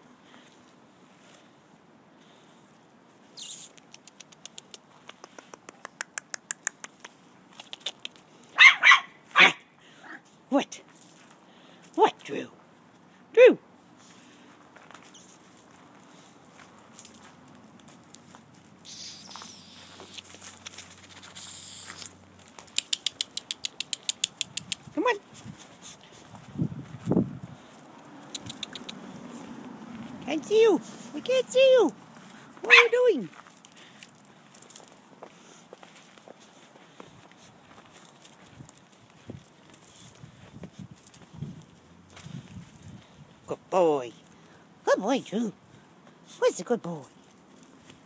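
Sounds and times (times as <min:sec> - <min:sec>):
puppy paws pattering on turf: 0:03.1 - 0:09.4, 0:10.2 - 0:13.1, 0:13.9 - 0:43.4, 0:46.0 - 0:48.0
leaves rustling: 0:14.0 - 0:22.8.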